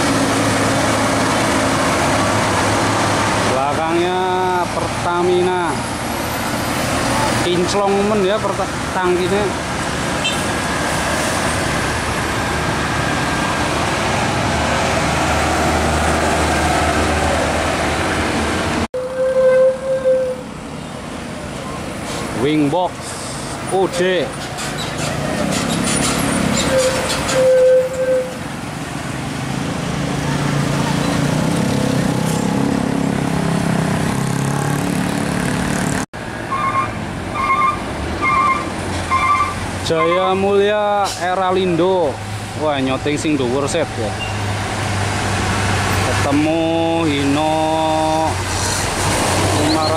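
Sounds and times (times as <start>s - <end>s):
heavy truck diesel engines: 0.0s - 49.9s
motorcycle traffic: 0.0s - 49.9s
road noise: 0.0s - 49.9s
scooter engines passing: 28.3s - 39.8s.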